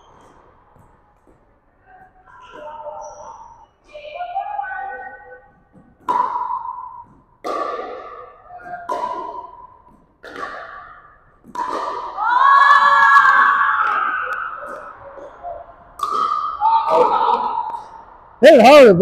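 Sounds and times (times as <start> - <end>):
paddle striking plastic ball: 11.4 - 12.2.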